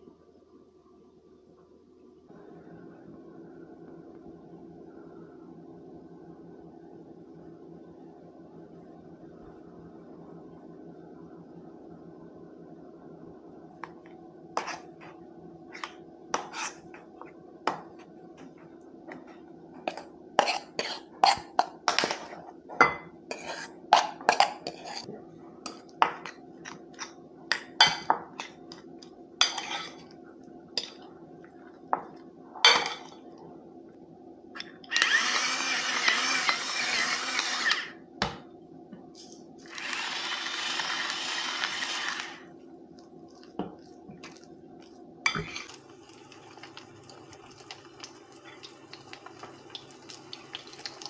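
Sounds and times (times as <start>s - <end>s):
small electric motor running: 34.9s - 38.0s, 39.7s - 42.5s.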